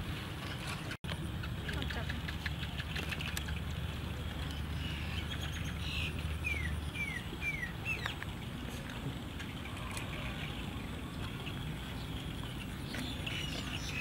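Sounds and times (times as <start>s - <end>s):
bird calling with downward notes: 4.5s - 8.2s.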